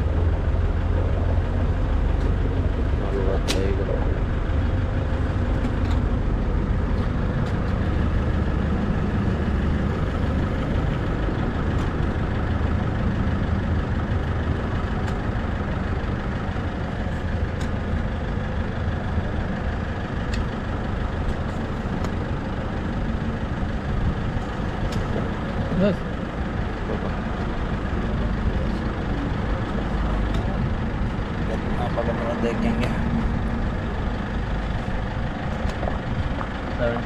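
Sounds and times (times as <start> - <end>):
fuel pump motor hum: 0.0 - 37.0.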